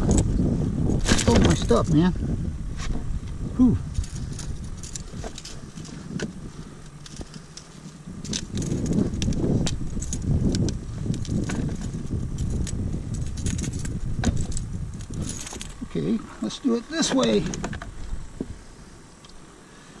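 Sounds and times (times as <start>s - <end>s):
gear clattering on kayak deck: 4.0s - 15.9s, 16.6s - 18.0s.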